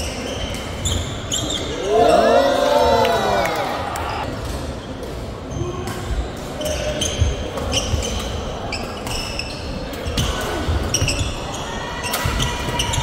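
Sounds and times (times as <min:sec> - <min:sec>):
shoes squeaking on hall floor: 0:00.0 - 0:02.2, 0:05.5 - 0:13.0.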